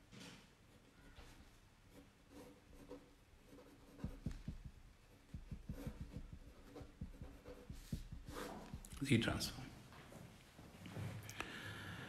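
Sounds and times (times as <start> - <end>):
marker pen writing on paper: 1.9 - 9.0.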